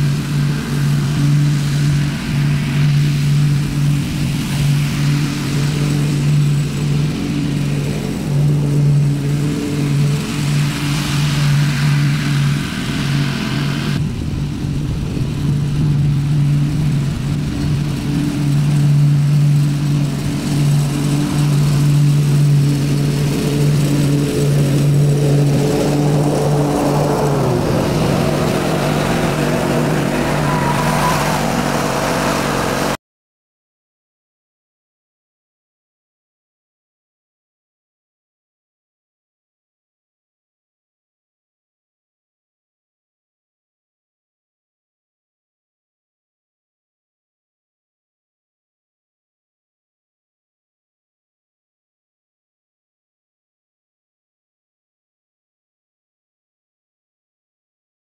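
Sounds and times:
lawn mower engine running: 14.1 - 33.0.

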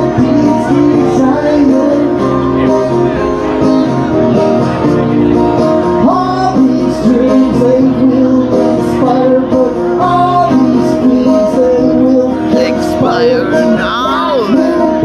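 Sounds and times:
man singing: 0.0 - 2.4, 6.0 - 15.0
acoustic guitar strumming: 0.0 - 15.0.

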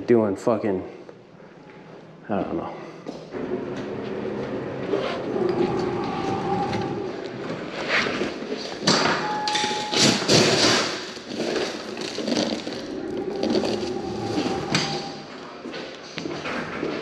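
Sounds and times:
electronic beep: 9.0 - 10.3.

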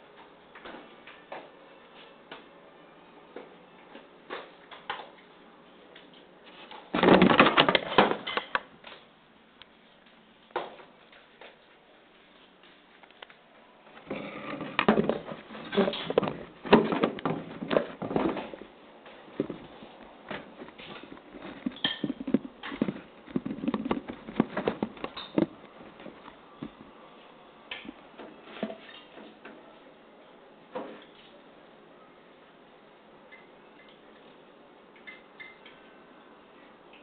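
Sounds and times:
knocking and clattering: 7.0 - 8.6, 14.1 - 18.7, 19.4 - 26.8.

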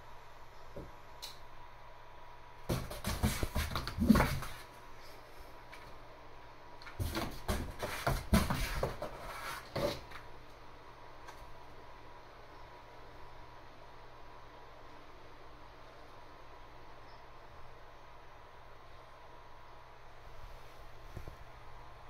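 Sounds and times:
cat paws scrabbling on cardboard: 2.7 - 4.7, 6.8 - 10.2.

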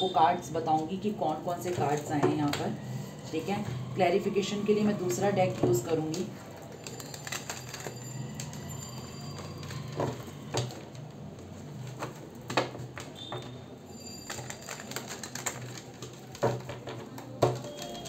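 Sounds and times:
cards tapped down: 14.6 - 18.0.

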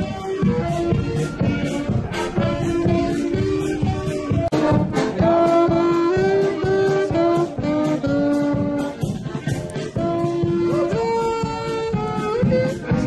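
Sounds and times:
brass band music: 0.0 - 13.0.

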